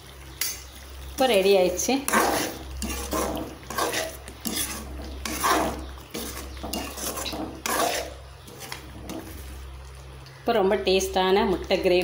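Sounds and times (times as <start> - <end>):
metal spatula scraping a pan: 2.0 - 9.6.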